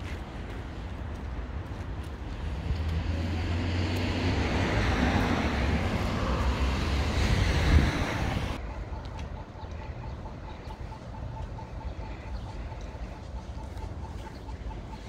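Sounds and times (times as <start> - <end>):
wind buffeting microphone: 0.0 - 8.6
vehicle passing: 2.2 - 8.7.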